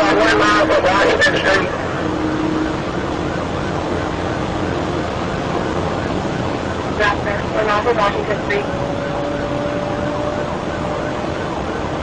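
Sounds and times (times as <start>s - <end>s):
road and engine noise in car: 0.0s - 12.0s.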